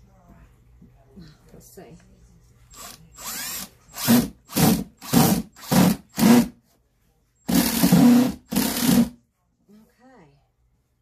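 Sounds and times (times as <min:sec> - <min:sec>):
cordless drill driving screw: 0:02.7 - 0:06.5, 0:07.5 - 0:09.1.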